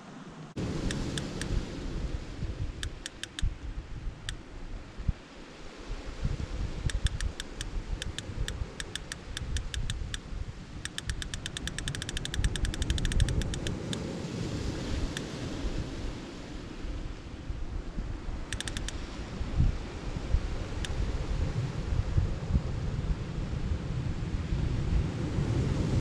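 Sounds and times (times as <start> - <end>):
wind rumble on microphone: 0.0 - 26.0
fishing reel ratchet clicking: 6.9 - 8.2, 8.8 - 10.2, 10.9 - 13.7, 18.6 - 18.9.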